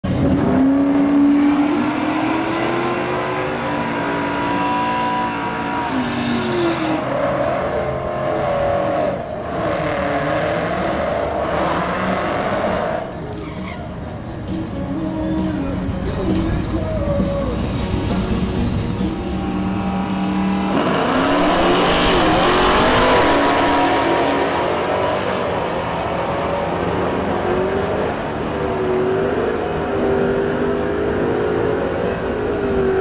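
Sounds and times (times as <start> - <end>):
supercharged engine at high revs: 0.1 - 13.0, 19.3 - 25.8
car engine revving: 0.1 - 13.4, 17.5 - 33.0
tires squealing: 0.2 - 14.1, 16.5 - 27.0.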